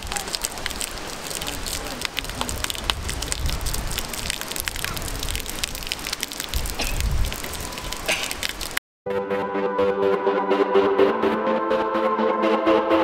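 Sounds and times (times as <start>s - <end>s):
fountain water splashing: 0.0s - 8.8s.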